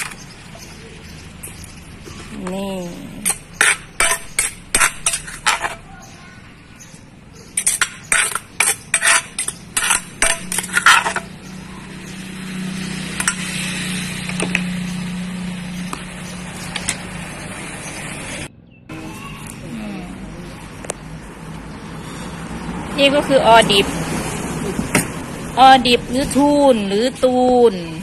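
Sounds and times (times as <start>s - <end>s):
spoon scraping clay mortar: 3.2s - 5.9s, 7.5s - 11.3s.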